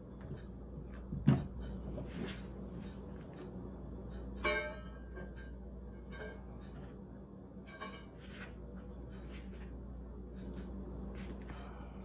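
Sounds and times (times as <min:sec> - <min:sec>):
low steady hum: 0:00.0 - 0:12.0
steel pot clinking and ringing: 0:04.4 - 0:06.5.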